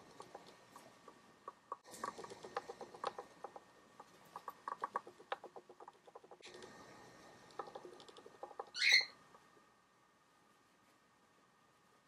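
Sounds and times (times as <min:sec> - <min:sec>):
bird sharp chirp: 0:08.7 - 0:09.2.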